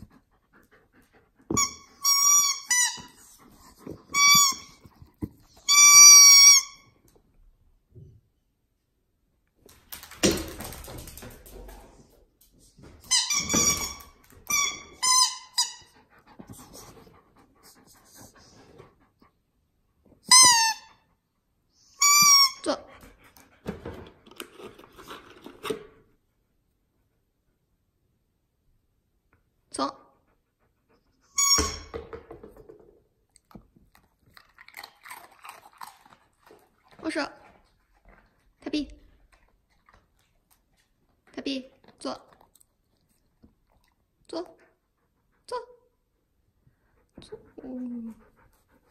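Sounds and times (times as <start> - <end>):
squeaky toy squeaking: 1.5 - 3.2, 4.0 - 4.8, 5.6 - 6.9, 13.1 - 16.0, 20.3 - 21.0, 22.0 - 22.7, 31.3 - 31.9
dog crunching biscuit: 33.4 - 36.8.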